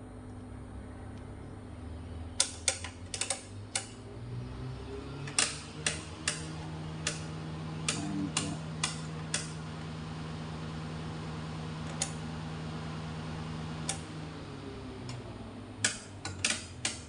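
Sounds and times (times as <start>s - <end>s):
low electrical hum: 0.0s - 17.0s
rotary knobs clicking: 2.4s - 4.0s, 5.2s - 9.6s, 11.8s - 12.2s, 13.8s - 14.1s, 15.0s - 17.0s.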